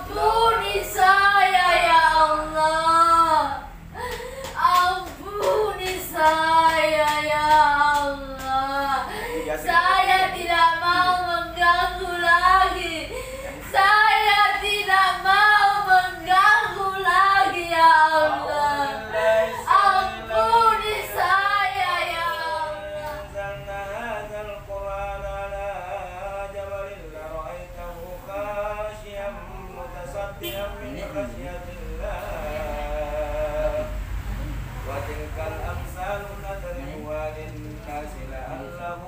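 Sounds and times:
woman singing in a wavering voice: 0.0 - 23.4.

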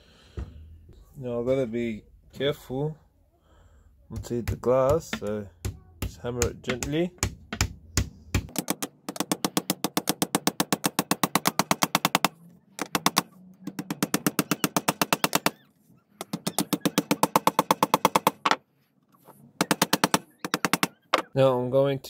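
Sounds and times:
hammer tapping nails into wood: 4.2 - 15.5, 16.2 - 18.6, 19.6 - 21.3.

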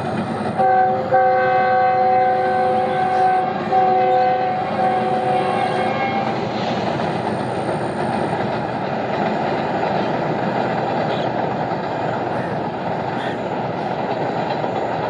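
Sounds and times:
train wheels rumbling on bridge: 0.0 - 15.0
train horn chord: 0.6 - 6.4.

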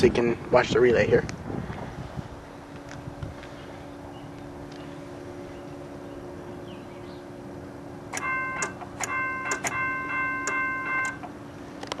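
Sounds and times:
steady low hum: 0.0 - 12.0
crossing signal bell ringing: 8.1 - 11.3.

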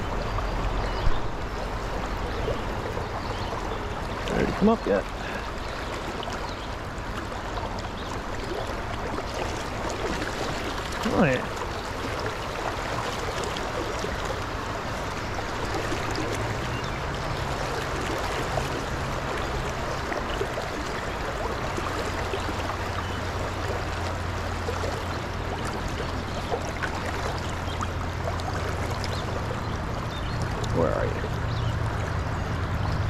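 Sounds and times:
creek water rushing over rocks: 0.0 - 33.0.

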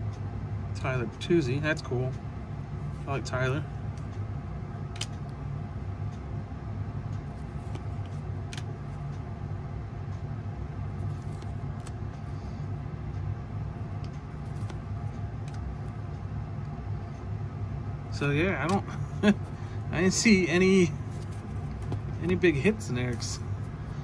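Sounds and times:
low motor hum: 0.0 - 24.0
cards being shuffled: 4.9 - 5.3, 7.2 - 9.1, 10.9 - 12.5, 13.9 - 16.0, 18.6 - 23.9.

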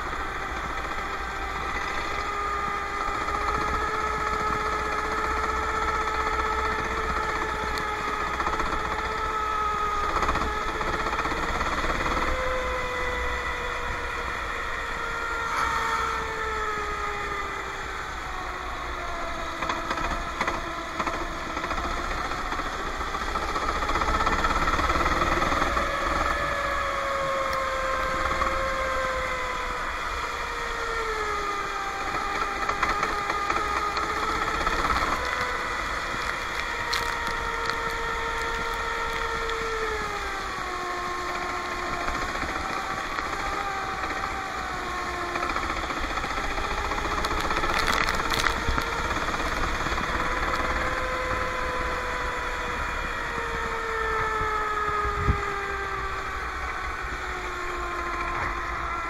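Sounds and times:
go-kart engine running: 0.0 - 59.0.

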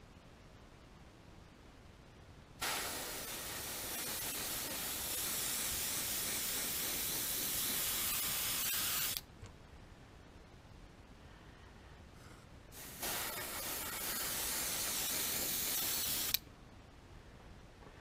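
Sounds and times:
airbrush spraying hiss: 2.6 - 9.2, 12.7 - 16.4.

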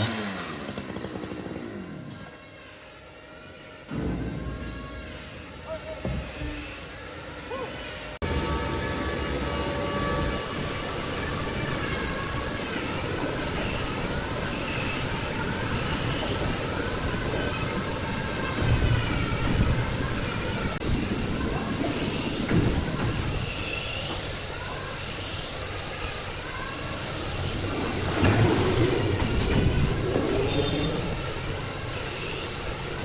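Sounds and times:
woodworking machine grinding: 0.0 - 2.3
high-pitched squeal: 0.0 - 33.0.

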